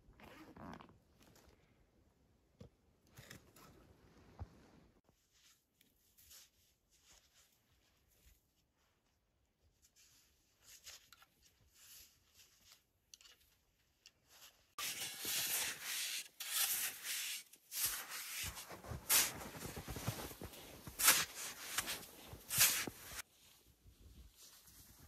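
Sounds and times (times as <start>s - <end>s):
snow shovel crunching and scraping: 14.8s - 23.2s.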